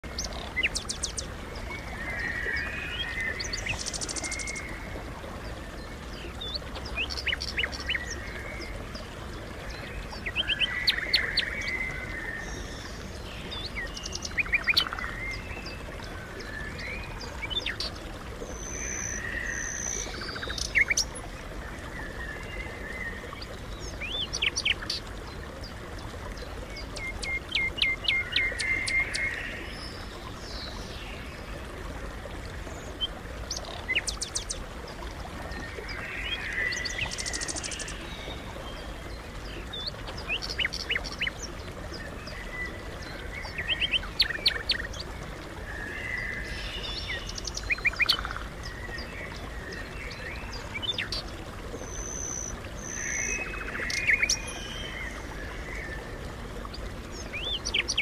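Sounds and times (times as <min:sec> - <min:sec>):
flowing water: 0:00.0 - 0:58.0.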